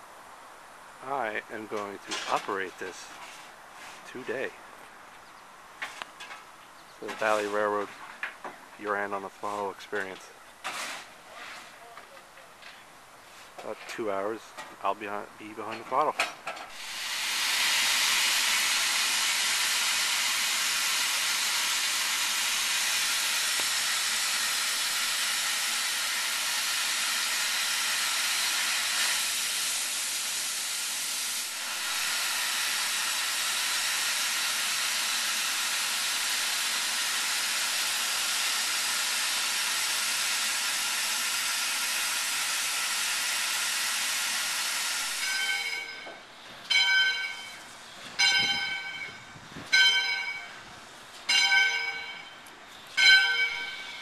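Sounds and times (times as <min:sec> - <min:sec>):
steam locomotive hissing: 0:16.6 - 0:47.6, 0:53.0 - 0:54.0
bell ringing: 0:45.2 - 0:46.1, 0:46.7 - 0:47.6, 0:48.2 - 0:50.6, 0:51.3 - 0:52.4, 0:53.0 - 0:54.0.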